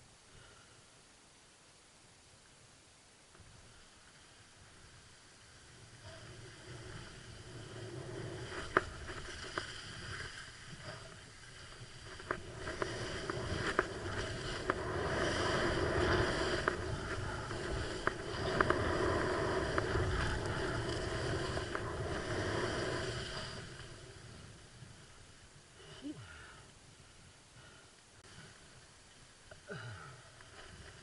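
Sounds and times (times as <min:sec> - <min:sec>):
skis hissing on snow: 0:03.7 - 0:24.6
wind on microphone: 0:05.8 - 0:25.7.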